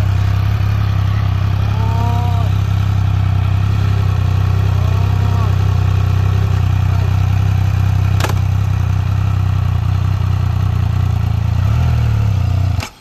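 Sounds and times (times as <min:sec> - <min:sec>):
motorcycle engine idling: 0:00.0 - 0:13.0
sharp click: 0:08.2 - 0:08.5.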